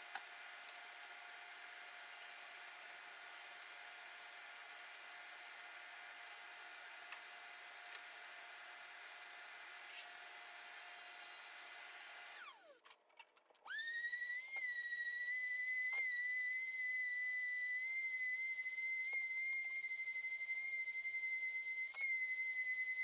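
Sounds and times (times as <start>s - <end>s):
power tool high-pitched whine: 0.0s - 12.8s, 13.7s - 23.0s
power tool winding down: 0.0s - 12.8s.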